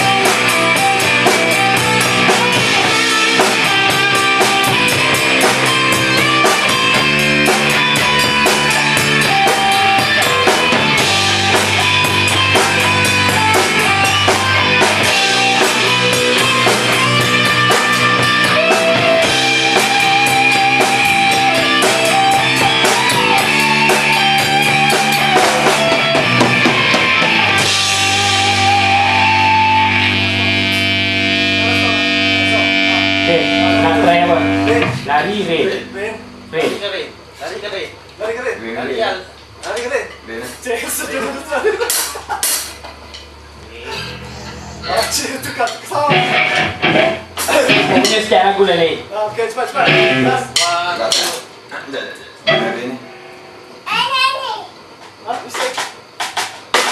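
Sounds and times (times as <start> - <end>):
cymbals: 0.0 - 36.9
rock band playing live: 0.0 - 37.3, 41.8 - 48.9, 49.8 - 51.7, 52.4 - 53.9.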